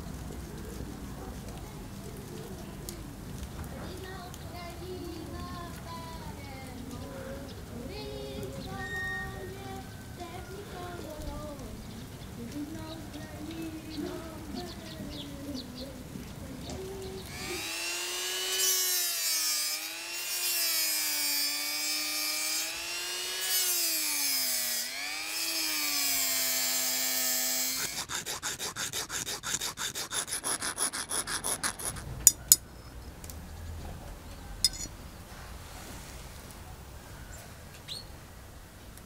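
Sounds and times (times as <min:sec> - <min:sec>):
rapid filing strokes: 0:17.3 - 0:32.6
rotary tool cutting metal: 0:17.3 - 0:32.6.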